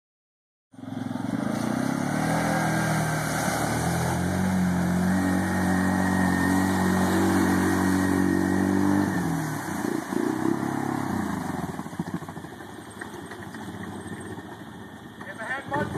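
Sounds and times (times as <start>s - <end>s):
atv engine running: 0.8s - 15.9s.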